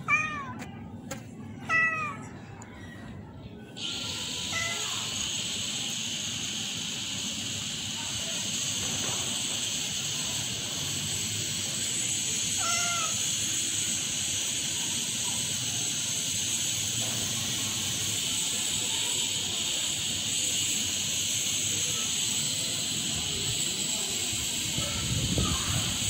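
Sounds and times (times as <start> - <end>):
cat meowing: 0.0 - 0.6, 1.6 - 2.3, 4.5 - 4.8, 12.6 - 13.2
steady high-pitched hiss: 3.7 - 26.0.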